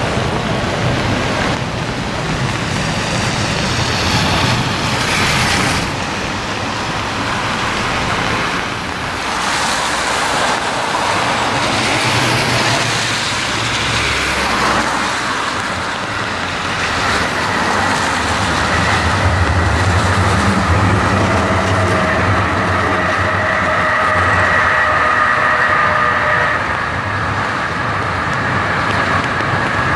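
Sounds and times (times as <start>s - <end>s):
tram motor hum and whine: 0.0s - 29.9s
tyres hissing on wet road: 0.0s - 29.9s.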